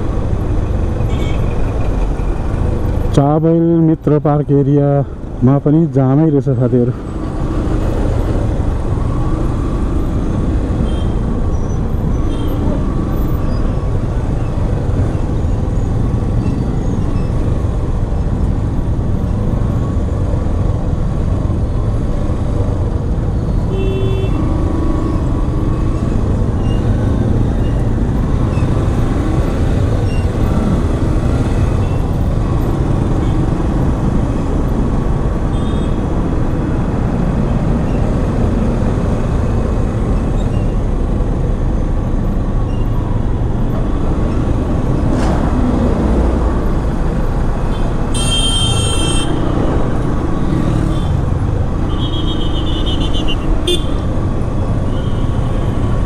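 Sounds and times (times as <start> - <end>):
traffic engines rumbling: 0.0 - 56.0
vehicle horn tooting: 23.7 - 24.4, 48.1 - 49.4, 51.9 - 54.0.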